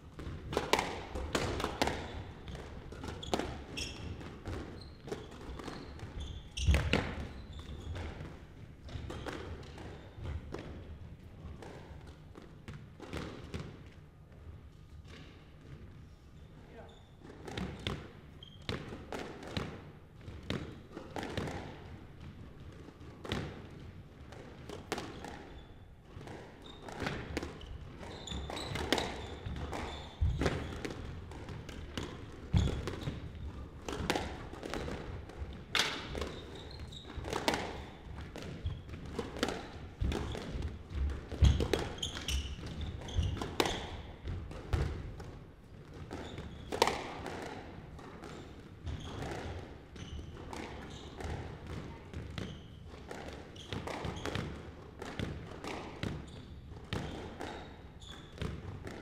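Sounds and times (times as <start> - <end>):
squash ball cracking off rackets: 37.2 - 49.6.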